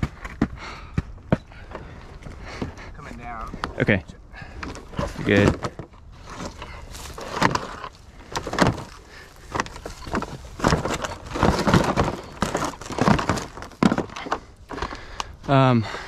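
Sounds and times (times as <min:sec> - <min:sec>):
rustling: 0:04.5 - 0:15.5
objects knocking and clattering: 0:04.6 - 0:15.3.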